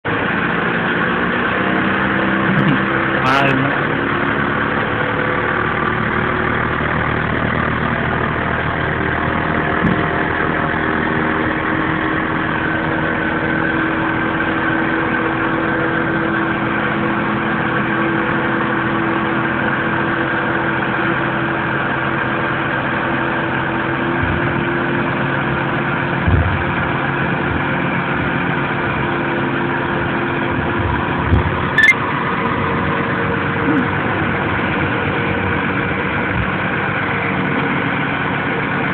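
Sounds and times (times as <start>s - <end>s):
diesel truck engine running: 0.0s - 38.9s.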